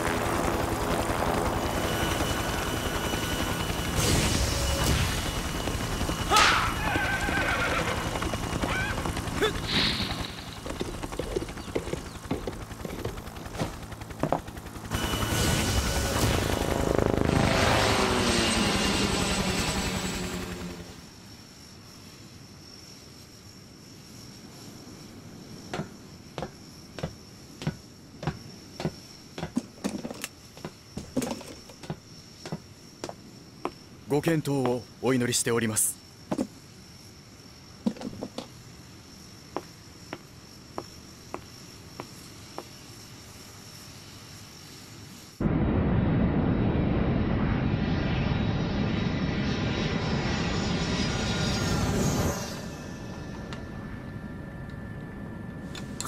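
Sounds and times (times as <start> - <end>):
horse whinnying: 6.3 - 8.0
hooves clip-clopping: 10.3 - 14.5.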